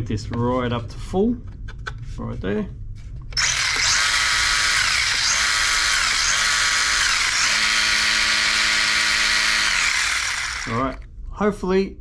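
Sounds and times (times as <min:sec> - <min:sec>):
electric motor high-pitched whine: 0:03.4 - 0:11.0.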